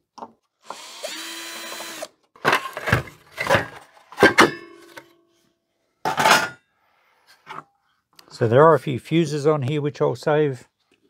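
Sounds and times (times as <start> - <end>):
power drill running: 0.6 - 2.2
hard parts clattering: 2.4 - 5.0.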